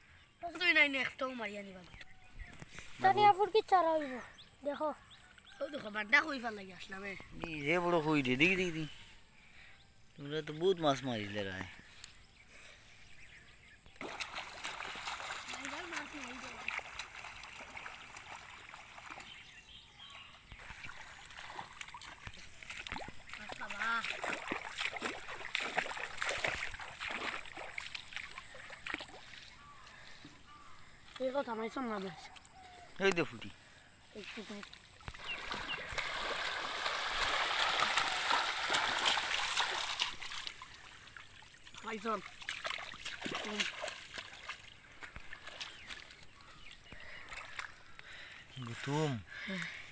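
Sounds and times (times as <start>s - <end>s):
muddy water swishing and sloshing: 13.9s - 32.9s, 33.6s - 49.9s.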